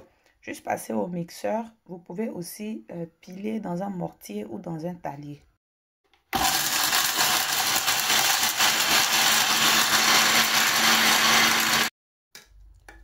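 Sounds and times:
electric mixer grinding: 6.3s - 11.9s.

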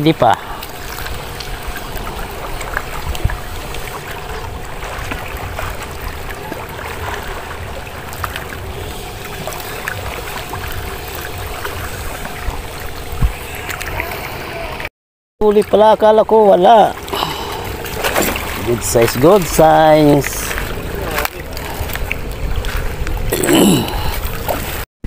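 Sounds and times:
small waves lapping: 0.0s - 24.8s
low rumble: 17.3s - 24.8s.

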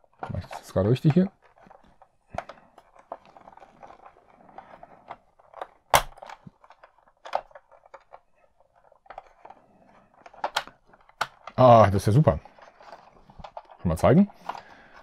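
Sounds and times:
plastic toy parts clicking: 0.1s - 15.0s
sharp plastic snap: 5.9s - 6.4s.

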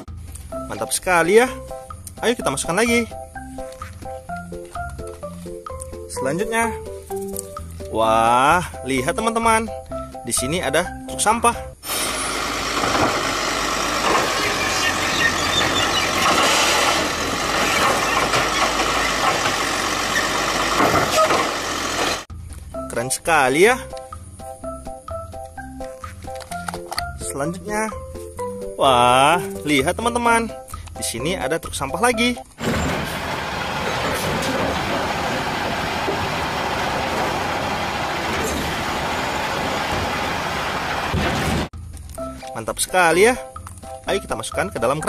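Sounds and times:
garbage truck diesel engine running: 11.8s - 22.3s, 32.5s - 41.9s
mechanical arm tipping cart: 11.8s - 22.3s, 32.6s - 41.7s.

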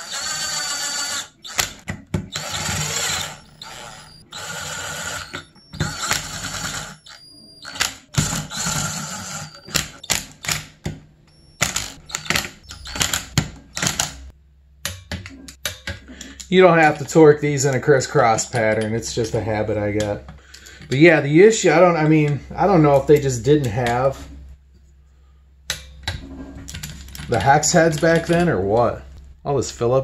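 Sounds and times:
cordless drill driving screws: 0.0s - 10.0s.

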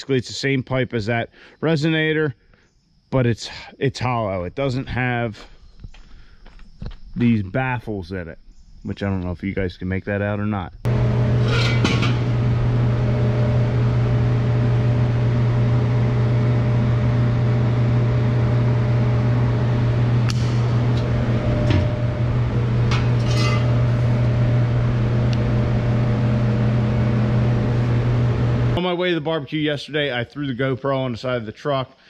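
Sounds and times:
machine hum with deep drone: 10.8s - 28.8s
metal pipes clinking: 11.2s - 12.5s, 20.2s - 24.8s.

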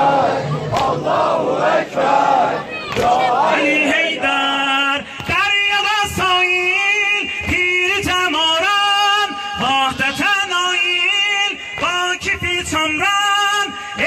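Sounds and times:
man singing a mourning lament: 3.8s - 14.0s.

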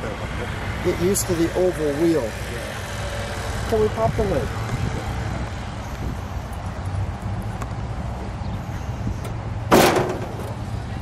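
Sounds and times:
low outdoor rumble: 0.0s - 11.0s
loud metal clunk: 9.7s - 10.6s.

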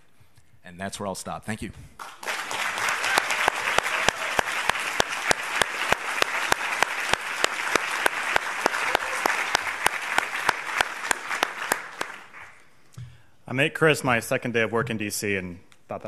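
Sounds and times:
audience applause: 2.0s - 12.6s
hands clapping close to microphone: 2.0s - 12.6s.

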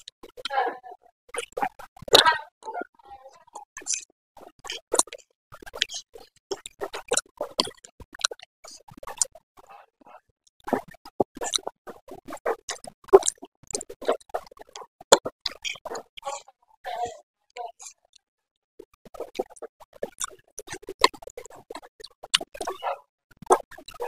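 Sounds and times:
wet chewing and slurping: 3.4s - 9.8s, 10.6s - 18.1s, 18.8s - 24.0s.

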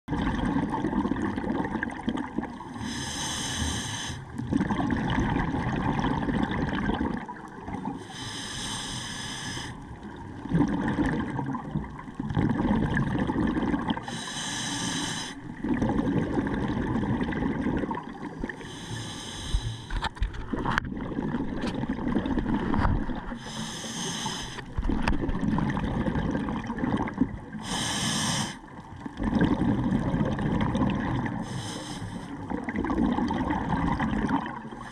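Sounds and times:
bubbling of exhaled air: 0.1s - 34.9s
regulator inhalation hiss: 2.8s - 4.2s, 8.0s - 9.8s, 14.1s - 15.5s, 18.6s - 19.9s, 23.4s - 24.6s, 27.6s - 28.6s, 31.4s - 32.4s.

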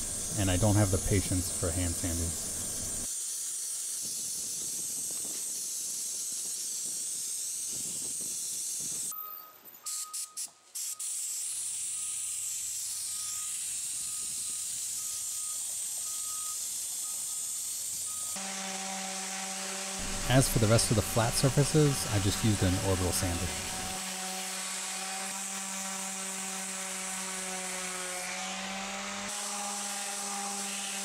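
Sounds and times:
sandblaster compressed-air hiss: 0.0s - 9.2s, 9.9s - 18.4s, 20.0s - 24.7s.

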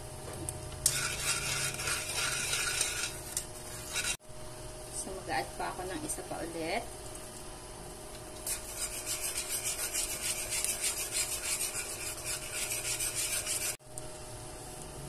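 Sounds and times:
metal spoon scraping wok: 0.8s - 4.2s.

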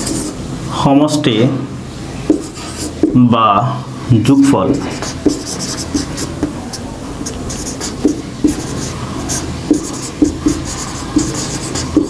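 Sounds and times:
marker pen scratching on whiteboard: 0.0s - 0.4s, 2.3s - 3.2s, 4.7s - 12.0s
room noise: 0.0s - 12.0s.

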